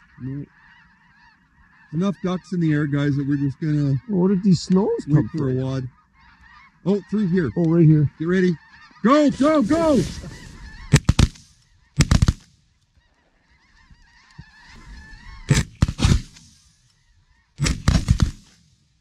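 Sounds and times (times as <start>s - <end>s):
geese calling: 0.0s - 18.4s
shotgun blasts: 9.3s - 12.6s, 15.5s - 16.8s, 17.6s - 18.8s.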